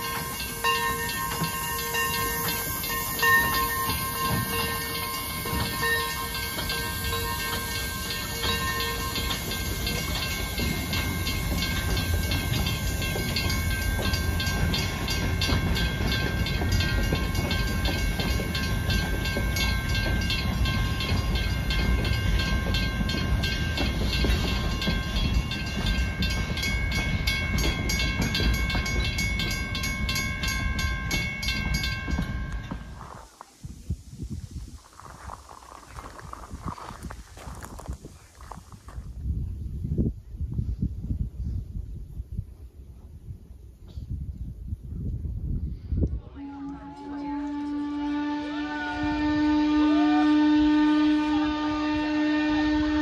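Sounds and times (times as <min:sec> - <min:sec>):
high ringing tones: 0:00.0 - 0:33.2
wheels clicking over rail joints: 0:00.0 - 0:33.4
train cars rumbling: 0:00.0 - 0:53.0.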